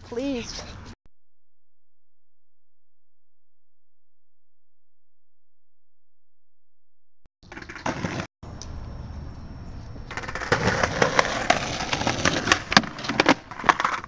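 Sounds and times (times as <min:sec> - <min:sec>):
skateboard wheels rolling on pavement: 0:07.4 - 0:14.0
skateboard clacks and knocks: 0:10.1 - 0:14.0.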